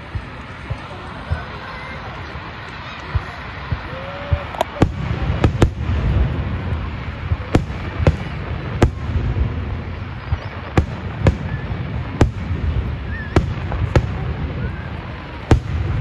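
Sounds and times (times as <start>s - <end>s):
firework shells bursting: 2.4s - 9.3s.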